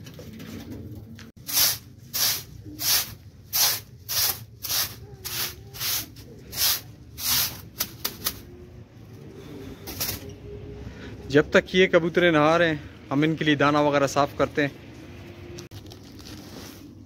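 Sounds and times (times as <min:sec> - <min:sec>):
broom sweeping concrete floor: 0:01.4 - 0:08.5.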